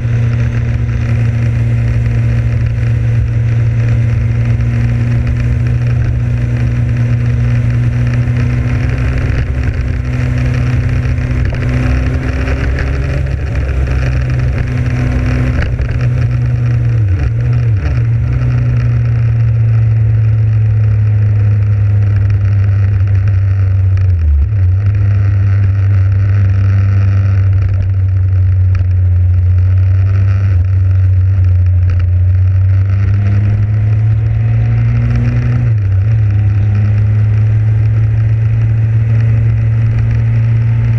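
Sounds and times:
motorcycle engine cruising: 0.0 - 40.9.

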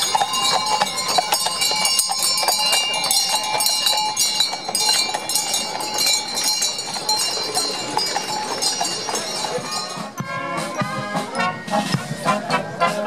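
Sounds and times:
horse hooves clip-clopping on road: 0.0 - 11.1
jingling bells: 0.0 - 12.6
brass music: 9.9 - 13.0.

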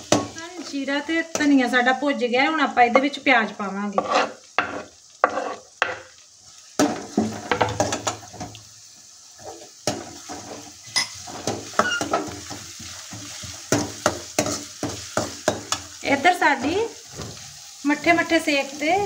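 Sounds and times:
onions sizzling in oil: 0.0 - 19.0.

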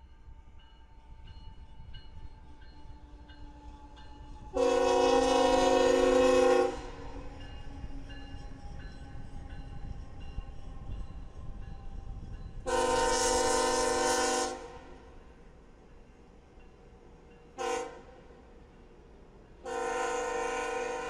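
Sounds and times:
train rumbling past: 0.0 - 21.0
locomotive air horn blasts: 4.6 - 7.2, 12.6 - 15.0, 17.6 - 18.2, 19.6 - 21.0.

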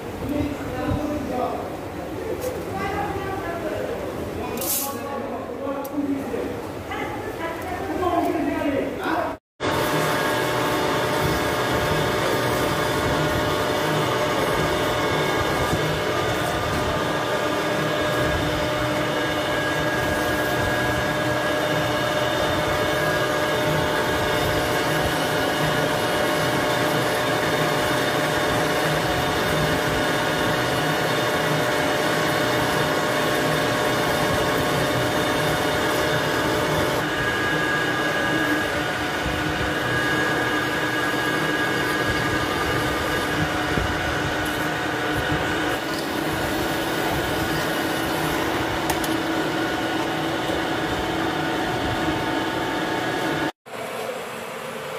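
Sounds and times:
metal lathe drilling: 9.6 - 53.5.

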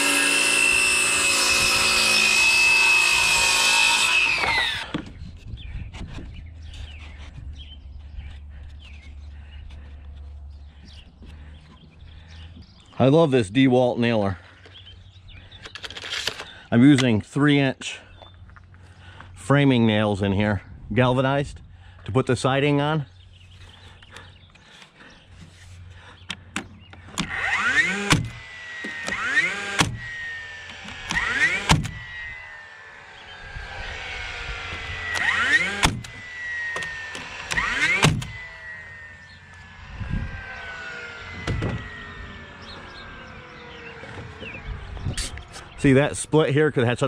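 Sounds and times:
nail gun shots: 27.2 - 28.4, 29.0 - 30.1, 30.8 - 32.0, 35.1 - 38.4
short rising whine: 27.2 - 46.0.

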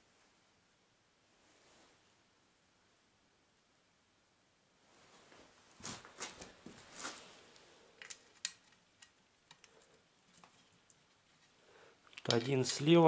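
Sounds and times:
scraping and rustling: 4.9 - 8.8.

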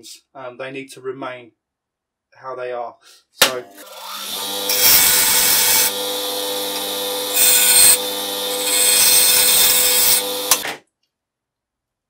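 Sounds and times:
bench grinder motor hum: 3.7 - 10.6
metal grinding hiss: 4.6 - 10.6.

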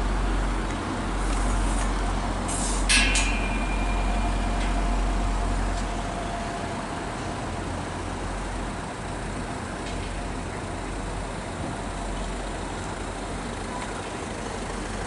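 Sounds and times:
train rumbling past: 0.0 - 13.5
air hiss: 2.5 - 3.0.

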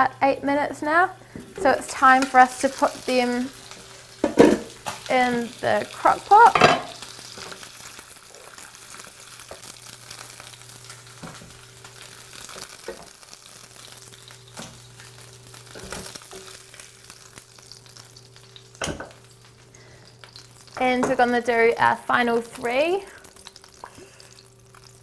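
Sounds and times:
oil sizzling in frying pan: 0.8 - 25.0.

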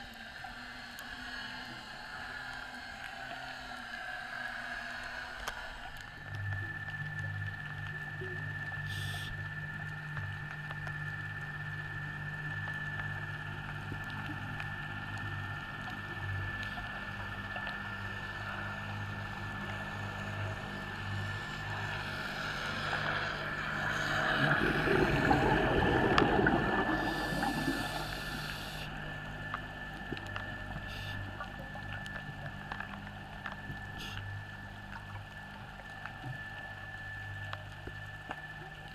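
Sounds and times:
noisy underwater rush: 0.0 - 38.9
thin high whine: 0.0 - 38.9
underwater low hum: 0.0 - 38.9.

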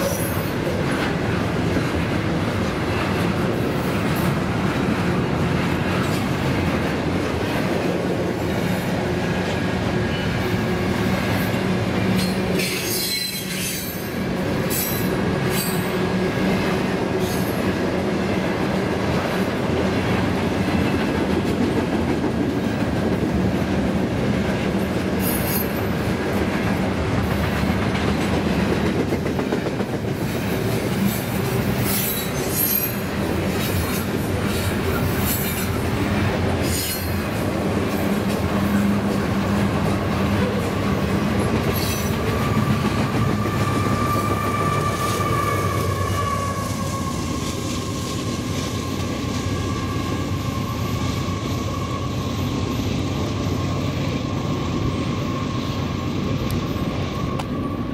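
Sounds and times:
steel wheels rumbling on rail: 0.0 - 57.9
high-pitched wheel squeals: 12.2 - 14.1, 31.8 - 33.1, 41.7 - 48.2.

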